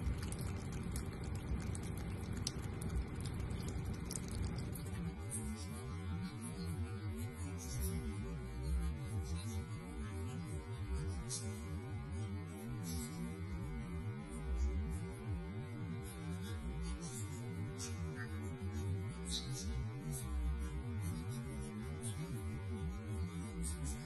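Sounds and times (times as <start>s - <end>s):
small splashing clicks: 0.0s - 5.0s
water running from faucet: 0.0s - 5.2s.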